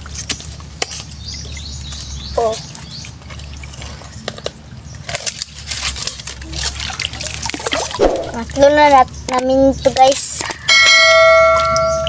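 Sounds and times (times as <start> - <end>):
knife digging into wet mud: 7.9 - 8.4.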